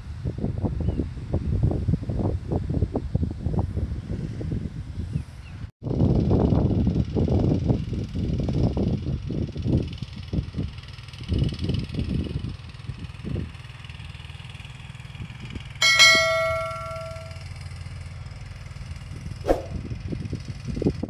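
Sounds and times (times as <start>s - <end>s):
wind buffeting microphone: 0.1s - 9.6s, 19.4s - 21.0s
metallic bell ding: 15.8s - 17.4s.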